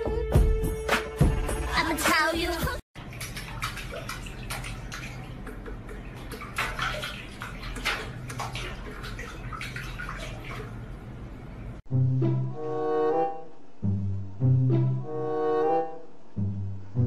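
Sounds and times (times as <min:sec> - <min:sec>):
water splashing in a metal sink: 0:03.0 - 0:11.8
low steady hum: 0:03.0 - 0:17.0.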